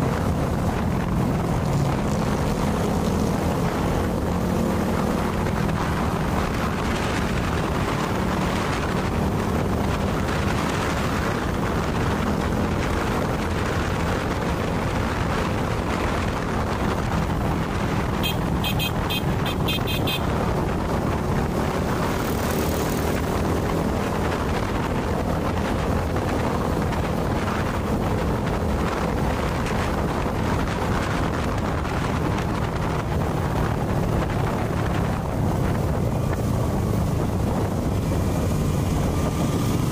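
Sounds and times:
motorcycle engine running: 0:00.0 - 0:39.9
wind buffeting microphone: 0:00.0 - 0:39.9.

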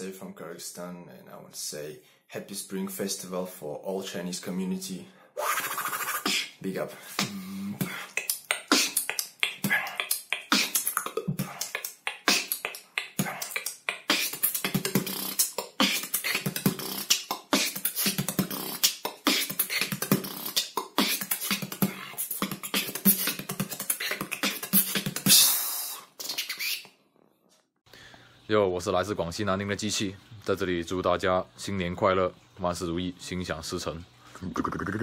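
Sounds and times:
person beatboxing: 0:05.4 - 0:26.9, 0:34.4 - 0:35.0.

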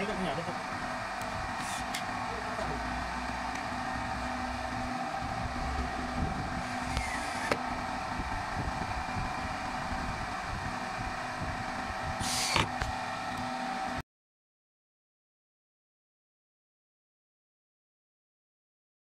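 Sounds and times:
mechanical hum: 0:00.0 - 0:14.0.

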